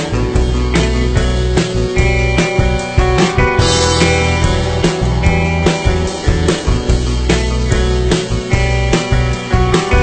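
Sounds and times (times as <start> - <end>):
rock music with drums: 0.0 - 10.0.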